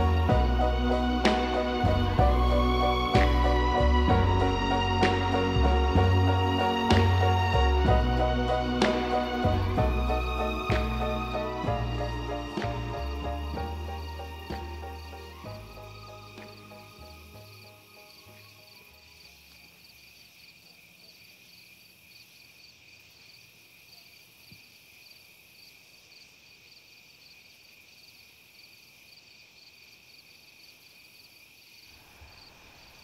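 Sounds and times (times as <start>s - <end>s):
pulsing cricket chirp: 13.0s - 33.0s
crickets trilling: 13.1s - 33.0s.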